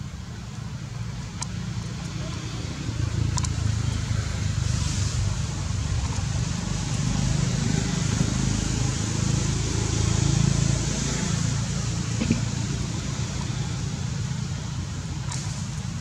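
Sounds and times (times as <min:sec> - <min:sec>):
even hiss: 0:04.4 - 0:05.8.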